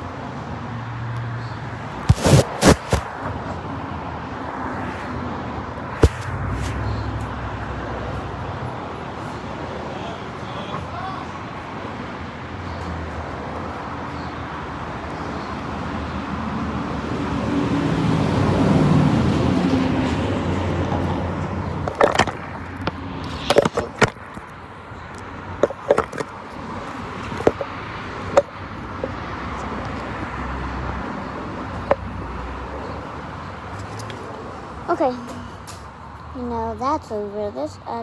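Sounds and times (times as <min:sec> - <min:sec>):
phone handling knocks and rubs: 0:02.1 - 0:03.1, 0:21.8 - 0:24.5, 0:25.6 - 0:26.4, 0:27.3 - 0:27.7.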